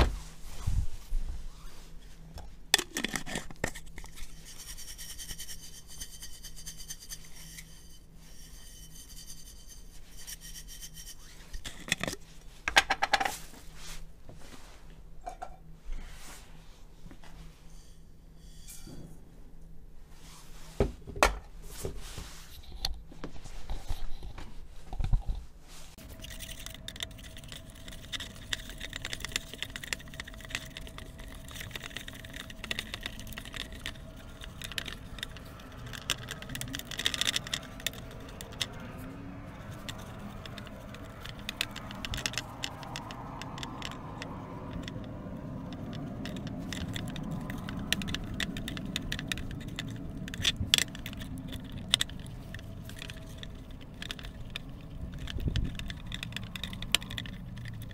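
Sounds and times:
wooden spoon scraping a pot: 0:03.0 - 0:12.2.

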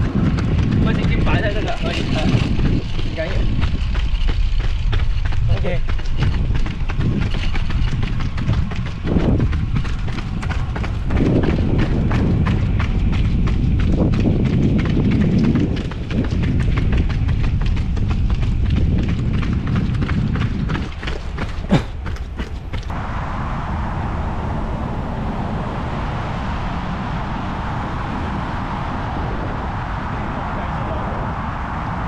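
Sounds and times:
running footsteps on pavement: 0:00.0 - 0:23.0
wind rumble on microphone: 0:00.0 - 0:32.0.

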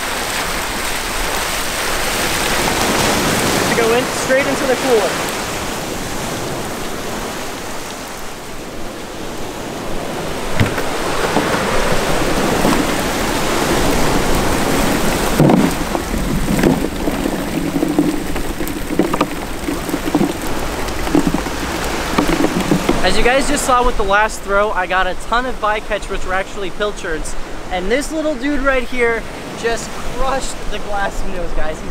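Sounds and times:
surf rushing: 0:00.0 - 0:31.9
wind: 0:00.0 - 0:31.9
knocks on plastic cooler: 0:10.6 - 0:11.9
small fish pattering into cooler: 0:10.6 - 0:23.2.

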